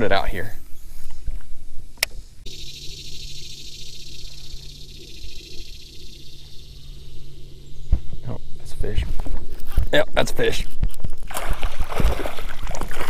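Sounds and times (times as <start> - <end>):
faint low hum: 0.1 - 13.0
sharp click: 2.0 - 2.2
high-pitched insect buzz: 2.2 - 11.3.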